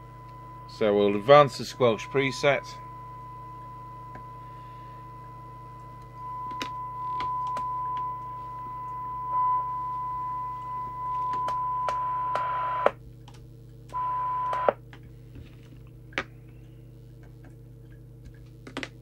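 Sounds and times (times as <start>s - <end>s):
test tone from radio loudspeaker: 0.0s - 13.0s, 13.9s - 14.8s
low mains hum: 0.0s - 19.0s.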